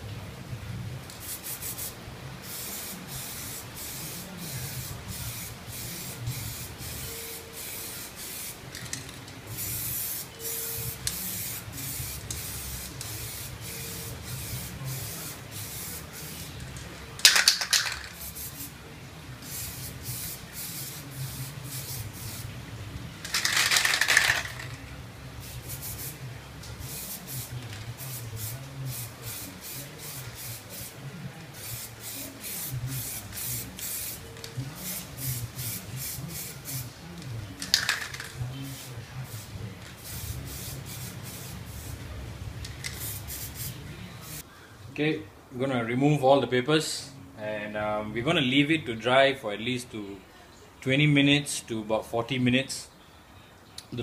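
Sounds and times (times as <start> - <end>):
aerosol can spraying: 19.4 - 22.5, 25.4 - 26.2, 26.8 - 34.2, 34.8 - 36.9, 37.6 - 42.0, 42.7 - 44.4.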